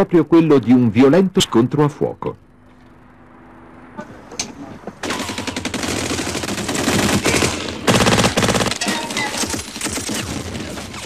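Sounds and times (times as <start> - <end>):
machine-gun bursts: 5.0 - 11.0.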